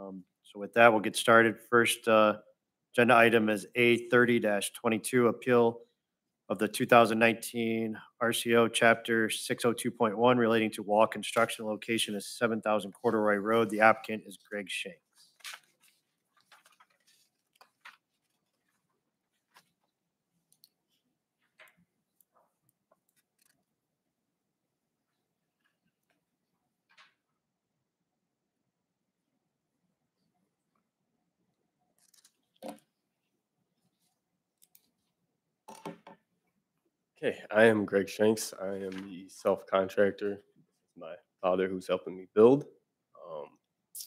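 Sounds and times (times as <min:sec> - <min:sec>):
papers rustling: 0:12.8 - 0:19.9
pen and papers handling: 0:15.1 - 0:23.7, 0:32.0 - 0:32.8.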